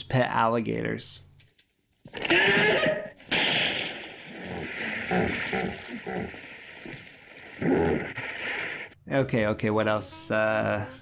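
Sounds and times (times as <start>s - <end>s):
indistinct commotion: 2.1s - 9.0s.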